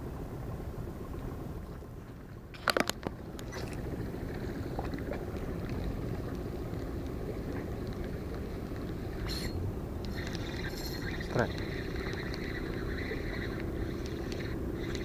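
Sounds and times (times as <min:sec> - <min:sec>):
faint clicks: 0:10.0 - 0:15.0.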